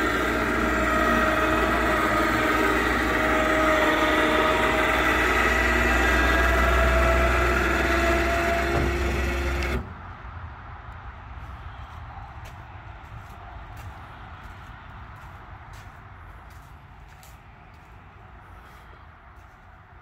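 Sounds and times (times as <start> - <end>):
electric winch motor whine: 0.0 - 10.1.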